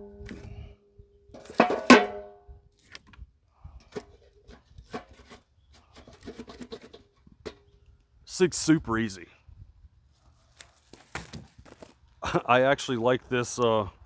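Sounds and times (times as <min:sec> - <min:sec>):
wood knocking in metal barrel: 0:01.3 - 0:02.4
metal barrel clang: 0:01.4 - 0:02.4.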